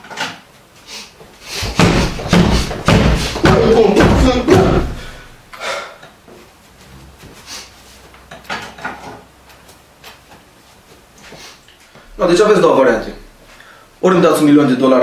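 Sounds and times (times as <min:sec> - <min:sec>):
loud thumps: 0:01.6 - 0:05.4
cupboard door knocks and rustles: 0:01.7 - 0:04.9.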